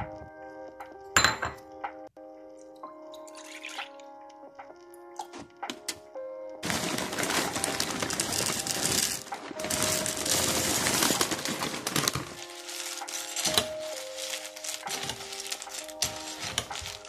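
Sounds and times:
cereal pouring into a bowl: 6.6 - 17.0.

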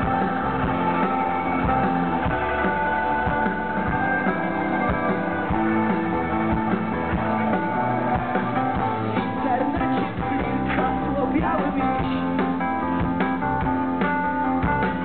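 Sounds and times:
electric guitar chords: 0.0 - 15.0.

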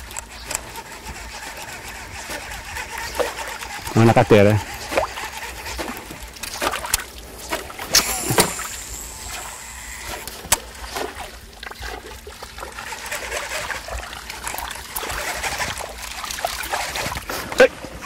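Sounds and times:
water splashing: 0.7 - 17.9.

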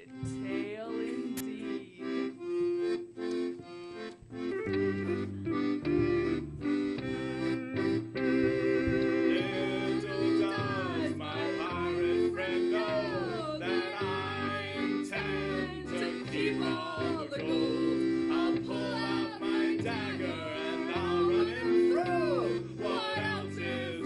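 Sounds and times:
held chords: 0.0 - 24.0
person singing: 8.8 - 24.0.

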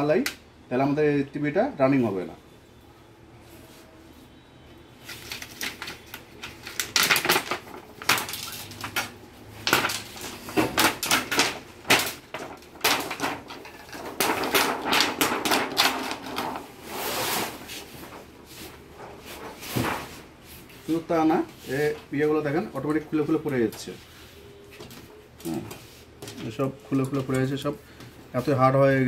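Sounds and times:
clicking and clattering of parts: 5.1 - 16.6.

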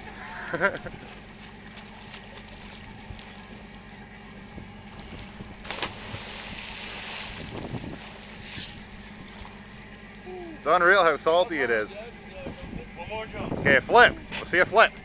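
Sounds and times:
boat engine humming: 0.0 - 15.0
person splashing into water: 5.6 - 7.9.

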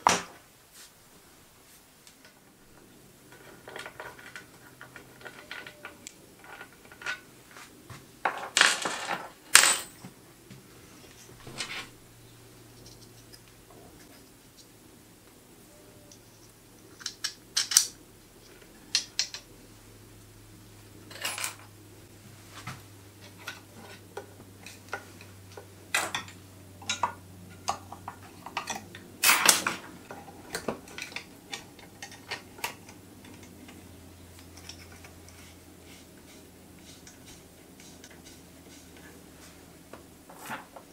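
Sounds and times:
small metal parts clinking: 16.8 - 17.9, 21.1 - 21.7.

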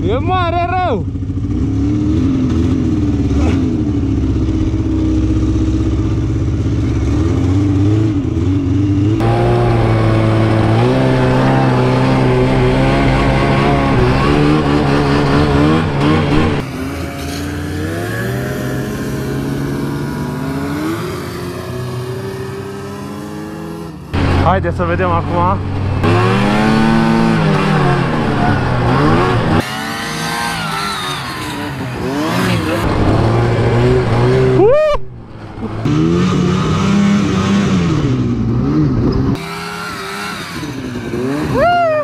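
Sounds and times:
snowmobile engine revving: 0.0 - 42.0
higher engine note: 4.1 - 23.1.

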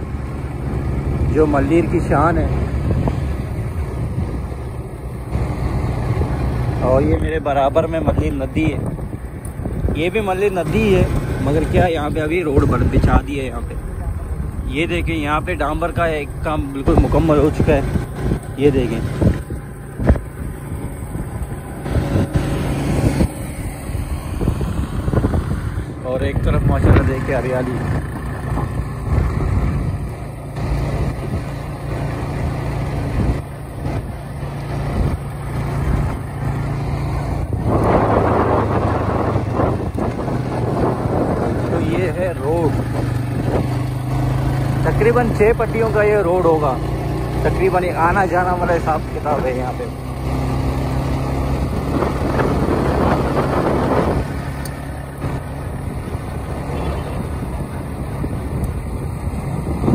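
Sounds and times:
motorcycle engine running: 0.0 - 59.9
tyre noise on dirt road: 0.0 - 59.9
wind rushing over microphone: 0.8 - 45.7, 48.9 - 59.9
rushing noise: 10.6 - 29.3.

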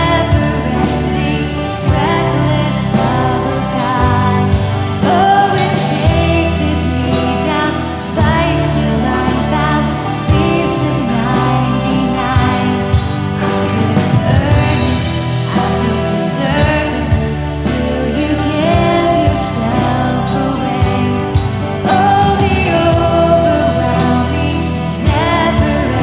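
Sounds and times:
band accompaniment: 0.0 - 26.0
drums: 0.0 - 26.0
woman singing into a microphone: 0.0 - 26.0.

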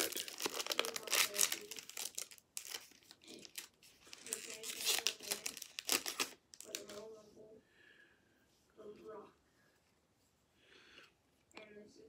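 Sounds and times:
wrapper crinkling and tearing: 0.0 - 7.0.

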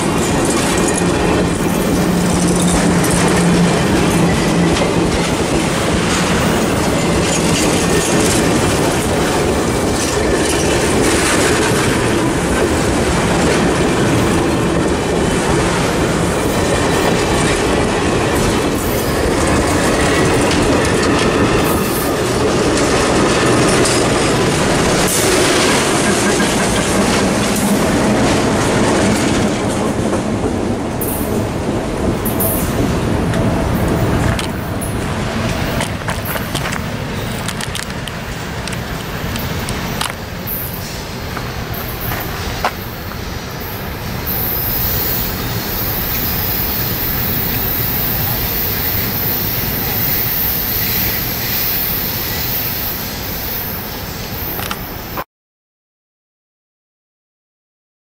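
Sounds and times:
train wheels clacking over rails: 0.0 - 55.0
diesel locomotive engine hum: 0.0 - 55.2.

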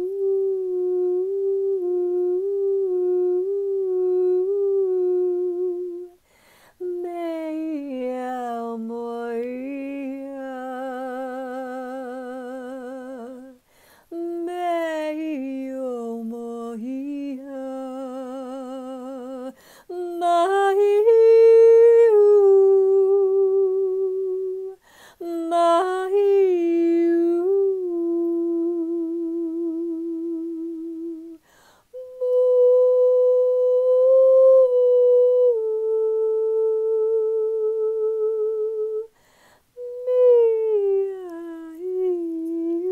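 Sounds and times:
woman breathing: 6.2 - 6.8, 13.6 - 14.1, 19.5 - 19.9, 24.8 - 25.2, 31.4 - 32.0, 39.1 - 39.8.

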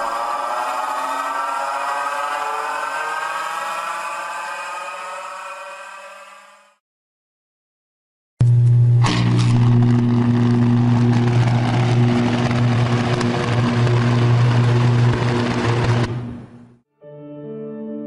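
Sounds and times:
electrical arc crackling: 8.4 - 16.7
electrical arc buzzing hum: 8.4 - 16.8.

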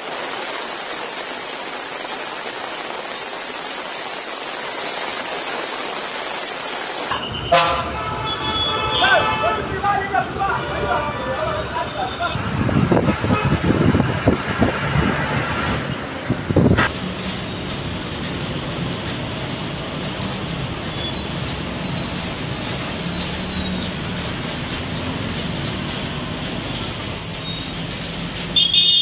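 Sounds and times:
train rumble: 7.1 - 28.9
wheel squeal: 20.1 - 24.3, 26.5 - 27.9
train thumping on rails: 21.8 - 28.6.

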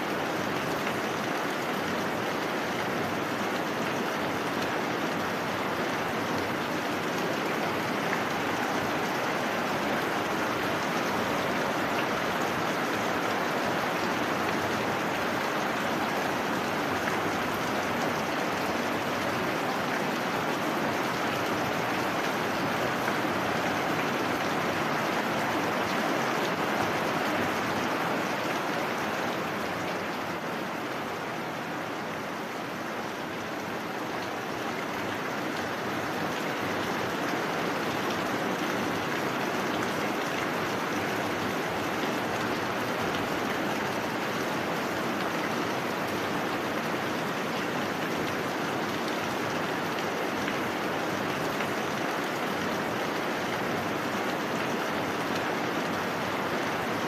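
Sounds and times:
heavy rain: 0.0 - 57.0.

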